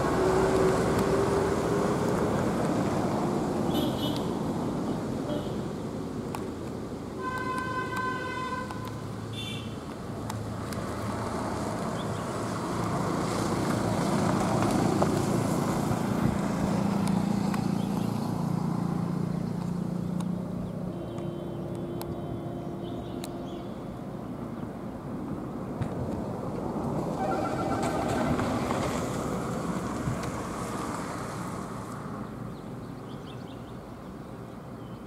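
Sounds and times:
diesel trucks passing: 0.0 - 35.0
vehicle horn: 3.7 - 4.3, 5.3 - 5.6, 7.2 - 9.8, 20.9 - 24.2, 27.1 - 28.6.

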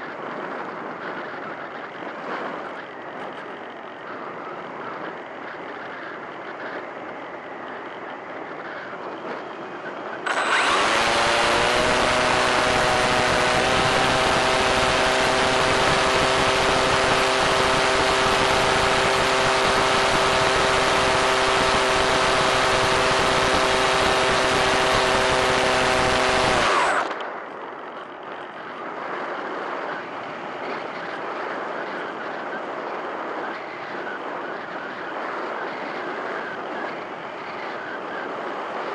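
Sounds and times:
electric motor and propeller whine: 0.0 - 38.9
wind rush: 0.0 - 38.9.

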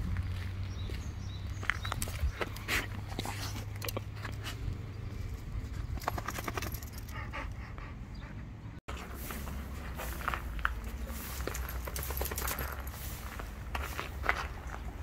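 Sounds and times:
footsteps on gravel: 0.0 - 3.8, 8.9 - 15.0.

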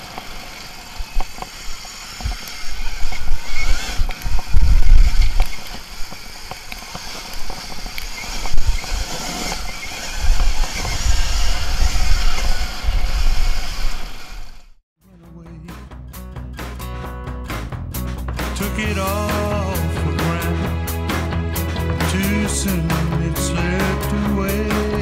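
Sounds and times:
wind rumble on microphone: 1.0 - 6.4, 7.4 - 14.6.

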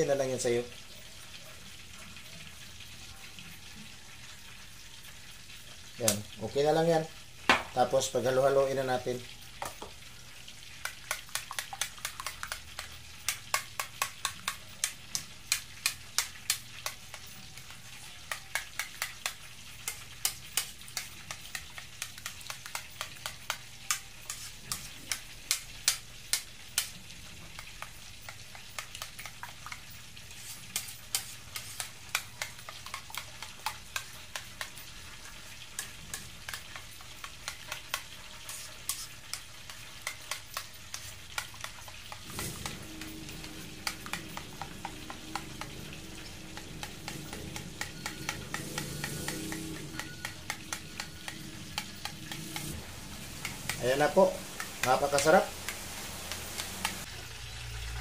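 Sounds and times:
spoon stirring thick sauce: 6.0 - 57.1
spoon scraping ceramic bowl: 16.4 - 25.2, 29.2 - 52.8.

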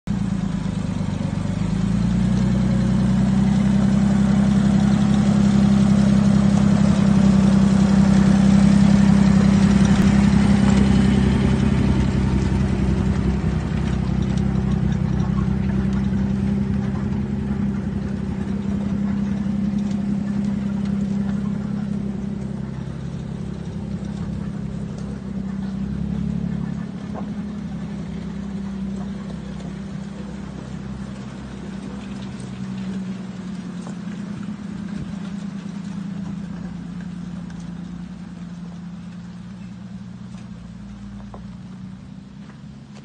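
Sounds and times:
truck engine running: 0.0 - 43.0.

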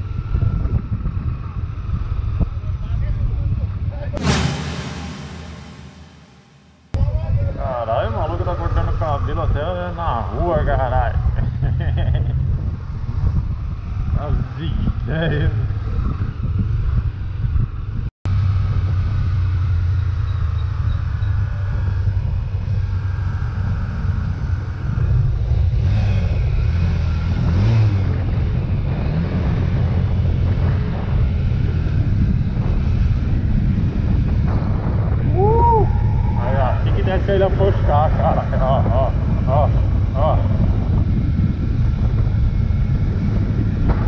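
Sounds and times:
wind rumble on microphone: 0.0 - 4.2, 6.9 - 44.0
motorcycle engine running: 18.3 - 35.2.

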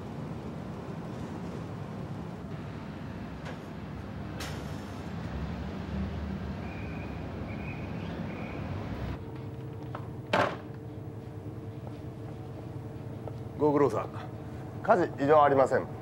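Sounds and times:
low rumble of ship machinery: 0.0 - 16.0
quieter steady hum: 7.5 - 16.0.

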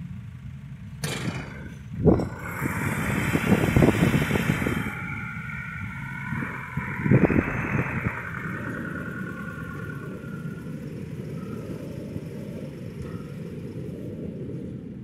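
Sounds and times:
rail car engine and wheels rumbling: 0.0 - 15.0
metal clanks: 1.0 - 3.9
high rattle: 1.0 - 14.3.

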